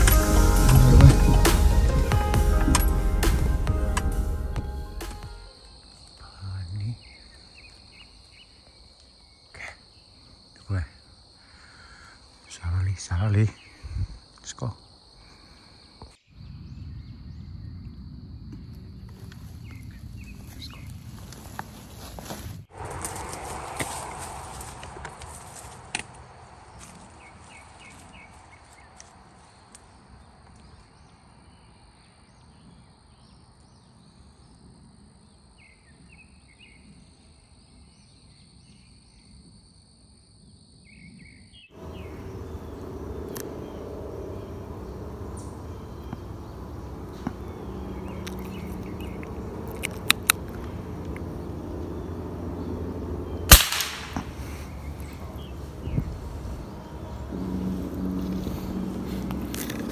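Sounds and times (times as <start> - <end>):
faint bird chirps: 40.8 - 53.5
steady high whine: 41.8 - 59.8
rifle shot: 53.5 - 54.4.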